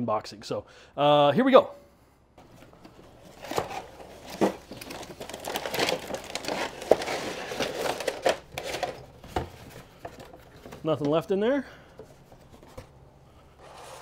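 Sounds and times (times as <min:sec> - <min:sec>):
cardboard rustling and scraping: 0:02.4 - 0:11.2, 0:12.0 - 0:14.0.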